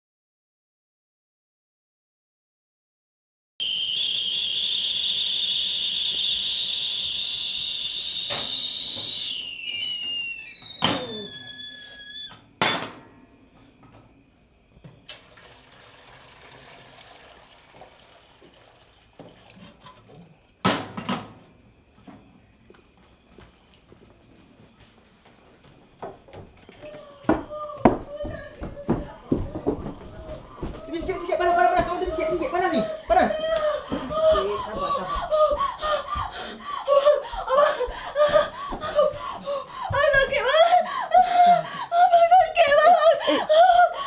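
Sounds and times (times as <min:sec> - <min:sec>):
kettle whistling: 0:03.6 - 0:12.4
hot water pouring into pot: 0:15.1 - 0:19.9.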